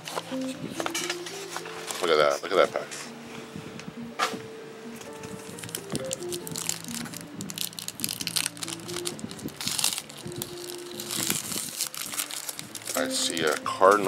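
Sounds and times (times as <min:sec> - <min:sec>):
background music: 0:00.0 - 0:14.0
foil wrapper crinkling: 0:05.1 - 0:14.0.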